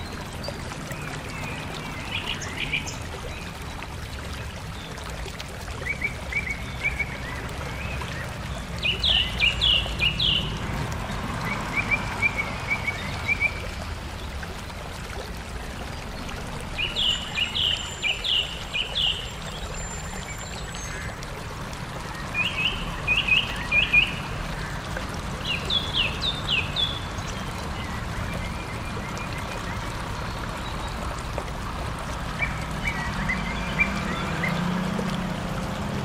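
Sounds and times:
songbird singing: 0.0s - 3.6s, 5.8s - 14.0s, 16.6s - 21.2s, 22.0s - 31.4s, 32.3s - 35.0s.

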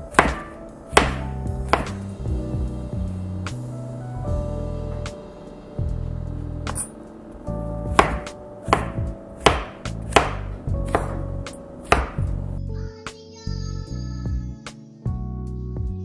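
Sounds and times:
knife chopping on wooden board: 0.1s - 2.0s, 8.0s - 11.3s, 11.9s - 12.3s.

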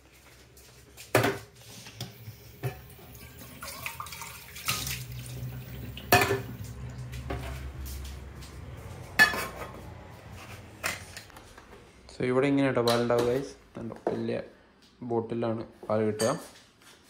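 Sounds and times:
crockery and cutlery clinking: 6.0s - 7.7s, 9.1s - 9.8s.

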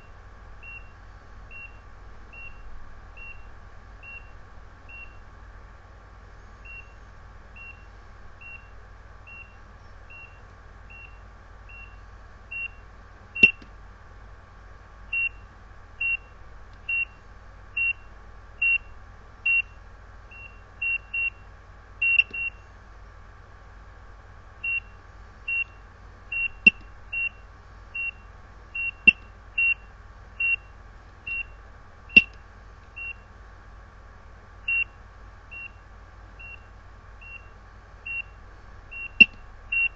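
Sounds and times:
heart monitor beeping: 13.4s - 13.6s, 22.0s - 22.6s, 28.8s - 30.7s, 38.9s - 39.9s
monitor control clicks: 13.4s - 13.7s, 22.1s - 22.5s, 39.1s - 39.4s.

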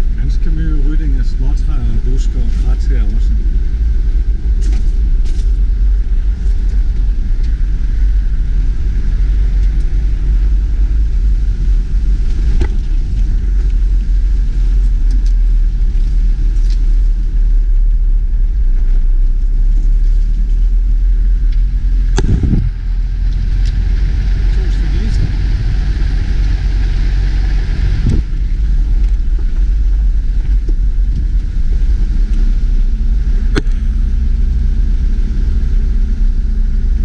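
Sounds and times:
car driving on gravel: 0.0s - 37.0s.

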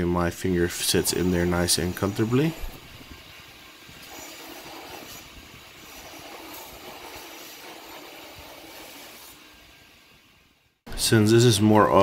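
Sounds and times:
belt grinder grinding steel: 1.1s - 9.6s.

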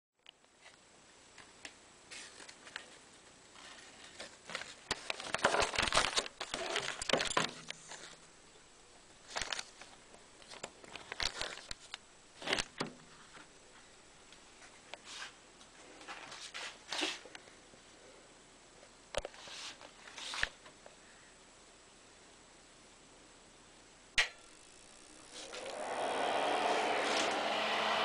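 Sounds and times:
paper rustling and crinkling: 2.1s - 8.2s, 9.2s - 13.5s.

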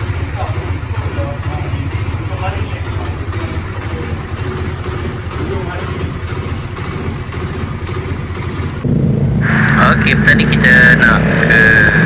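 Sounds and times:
motorcycle engine idling: 0.0s - 9.0s.

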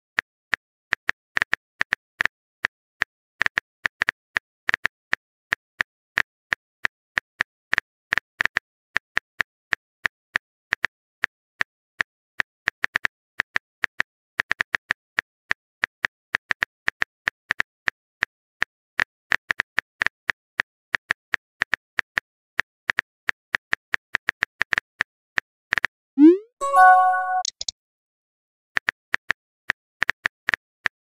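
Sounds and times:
rising message sent sound: 26.2s - 27.6s.

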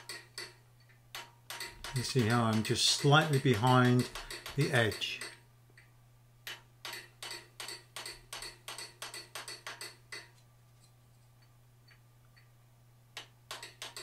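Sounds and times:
hammer striking forging tool: 1.2s - 5.4s, 6.5s - 10.3s.

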